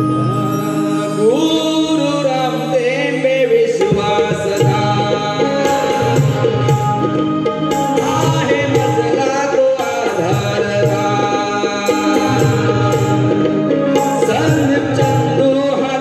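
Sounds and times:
man singing: 0.5 - 16.0
hand drums: 3.7 - 16.0.

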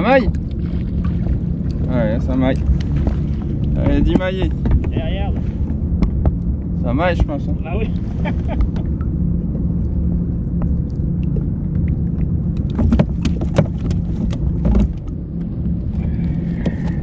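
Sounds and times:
low engine-like hum: 0.0 - 17.0
sharp clicks and knocks: 2.6 - 7.4, 10.6 - 15.5.

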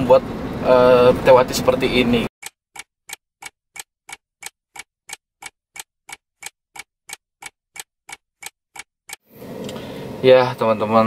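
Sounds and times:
clock ticking: 2.4 - 9.2.

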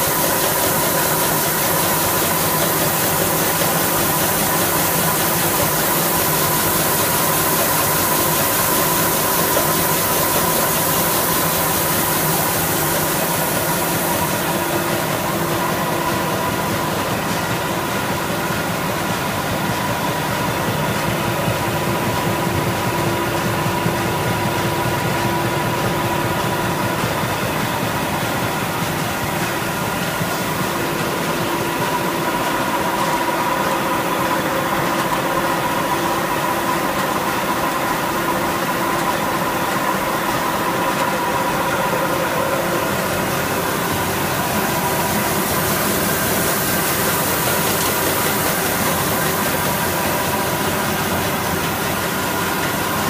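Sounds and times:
hiss: 0.0 - 16.4, 41.8 - 53.0
printing machine drone: 0.0 - 53.0.

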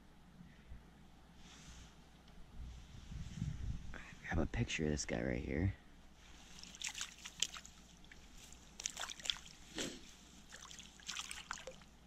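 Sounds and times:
small water splashes and drips: 6.6 - 9.6, 10.5 - 12.0.

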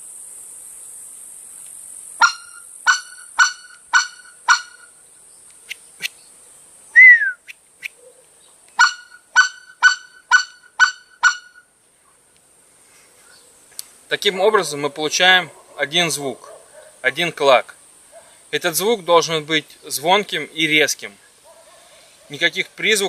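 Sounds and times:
goose call clucks: 2.2 - 4.9, 8.8 - 11.6.

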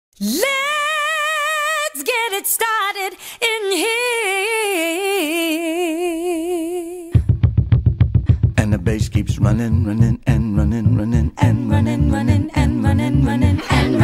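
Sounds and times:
woman singing: 0.2 - 7.2, 11.4 - 14.0.

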